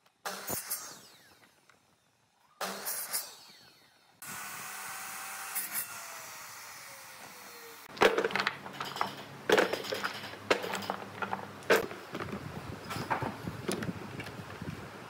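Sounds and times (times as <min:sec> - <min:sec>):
saw motor winding down: 0:00.4 - 0:07.9
wood blocks knocking together: 0:07.9 - 0:12.4.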